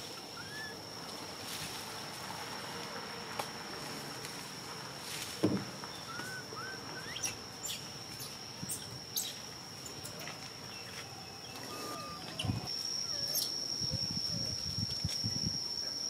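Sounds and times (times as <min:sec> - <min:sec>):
high-pitched insect drone: 0:05.9 - 0:16.0.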